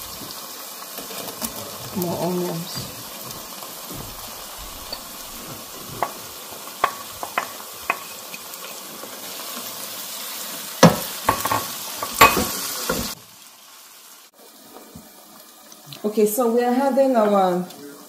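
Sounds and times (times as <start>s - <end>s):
sauce sizzling in pan: 0.0s - 18.0s
wooden spoon knocking pan: 1.4s - 8.4s, 10.8s - 13.2s.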